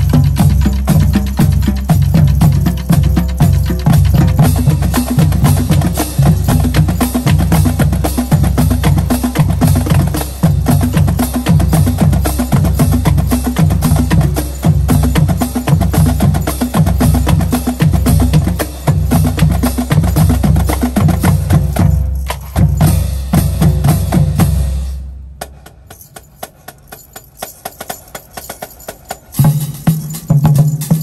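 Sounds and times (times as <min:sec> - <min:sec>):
bass drum beats: 0:00.0 - 0:25.8.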